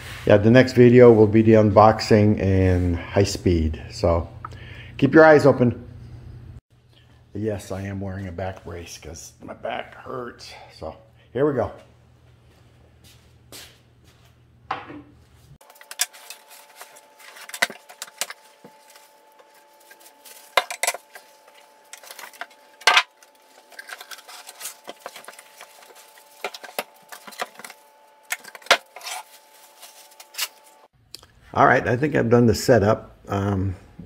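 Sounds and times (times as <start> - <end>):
unboxing clatters and rustles: 15.6 - 30.7.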